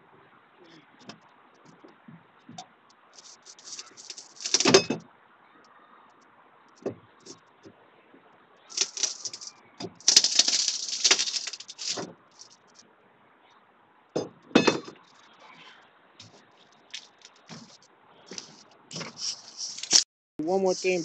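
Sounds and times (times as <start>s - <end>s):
metallic crash: 3.2s - 5.0s, 8.7s - 12.0s
tools scraping and clinking metal: 3.2s - 5.0s, 8.7s - 12.6s, 16.2s - 20.0s.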